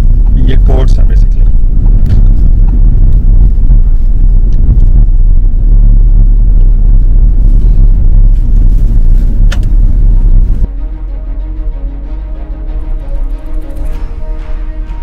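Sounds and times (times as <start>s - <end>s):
car engine and tyres on wet road: 0.0s - 10.8s.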